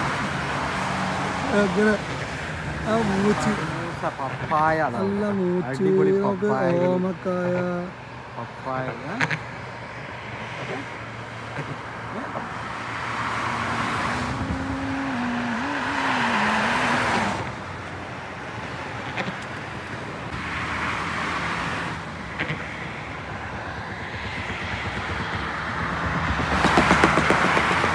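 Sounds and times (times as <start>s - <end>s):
road and traffic noise: 0.0s - 27.9s
wavering hum: 13.8s - 18.1s.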